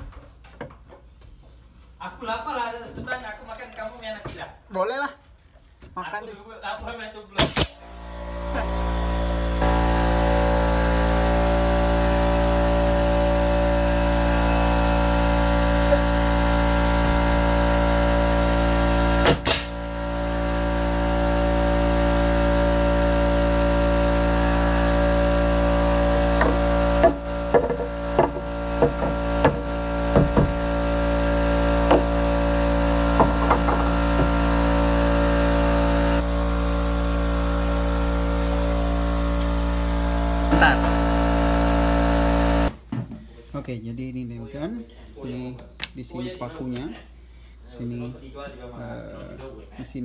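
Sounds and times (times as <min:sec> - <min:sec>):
air compressor humming: 0:07.4 - 0:42.9.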